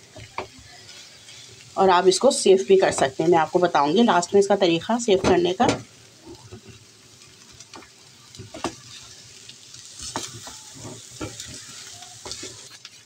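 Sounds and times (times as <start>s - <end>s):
food sizzling in oil: 0.0s - 13.0s
spatula scraping a pan: 10.0s - 13.0s.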